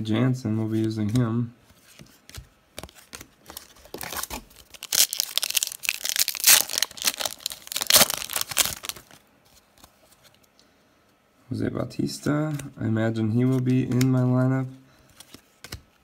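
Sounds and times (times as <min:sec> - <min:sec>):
foil wrapper tearing and crinkling: 0:03.9 - 0:09.2.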